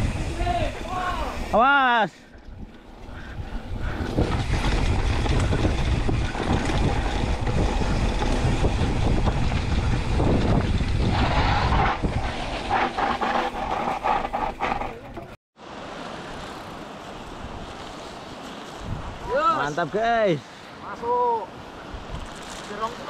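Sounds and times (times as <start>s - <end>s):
bike tyres rumbling on dirt trail: 0.0s - 1.5s, 2.4s - 19.4s
wind buffeting microphone: 0.0s - 1.6s, 2.3s - 14.9s, 17.2s - 19.6s, 21.1s - 22.6s
bike rattling over bumps: 2.4s - 15.4s.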